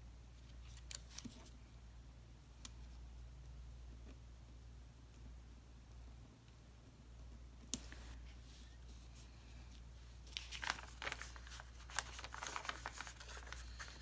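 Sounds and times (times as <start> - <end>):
paper rustling and crinkling: 10.2 - 14.0.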